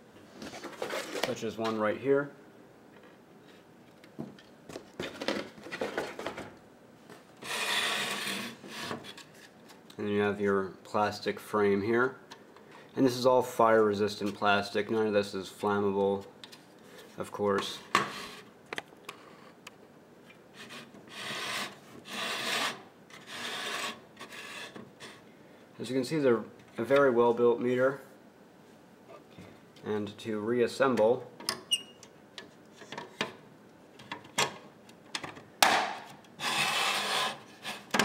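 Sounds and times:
plastic and metal rasping rub: 0:07.4 - 0:09.4, 0:20.6 - 0:25.2, 0:36.4 - 0:38.0
short scrapes: 0:36.4 - 0:37.9.

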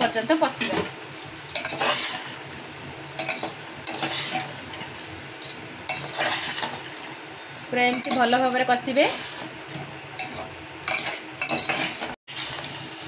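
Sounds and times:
food frying in oil: 0:00.0 - 0:13.0
metal spatula scraping a pot: 0:01.5 - 0:02.6, 0:03.2 - 0:07.0, 0:07.9 - 0:12.8.

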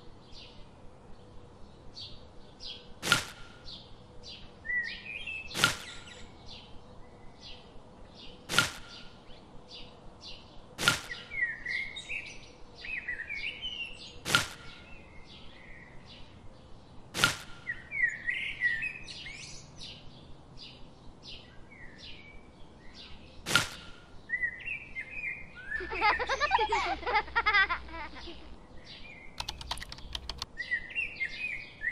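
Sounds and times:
birds chirping: 0:00.0 - 0:31.9
sharp knocks on toy trolley: 0:03.0 - 0:03.5, 0:05.6 - 0:06.0, 0:08.5 - 0:09.0, 0:10.8 - 0:11.2, 0:14.3 - 0:14.7, 0:17.2 - 0:17.6.

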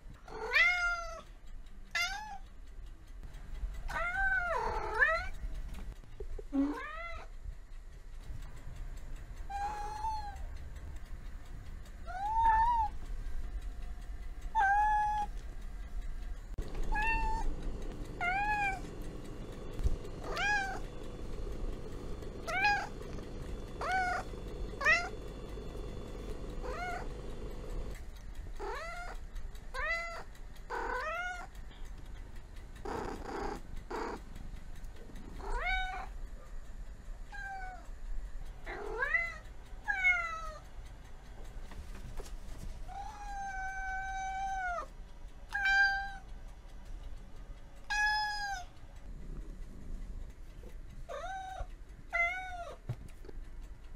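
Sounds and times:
cat meowing: 0:00.3 - 0:01.2, 0:02.0 - 0:02.4, 0:03.9 - 0:05.4, 0:06.6 - 0:07.3, 0:12.1 - 0:12.9, 0:14.6 - 0:15.3, 0:16.8 - 0:17.5, 0:18.2 - 0:18.8, 0:20.2 - 0:20.9, 0:22.4 - 0:23.0, 0:23.8 - 0:25.2, 0:26.6 - 0:27.1, 0:42.9 - 0:44.9, 0:45.5 - 0:46.3, 0:47.9 - 0:48.7, 0:51.1 - 0:52.8.

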